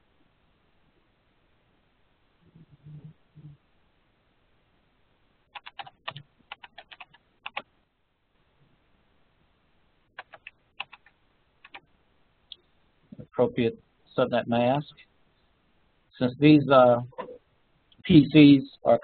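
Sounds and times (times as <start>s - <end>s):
computer keyboard typing: 5.5s - 7.7s, 10.2s - 11.9s.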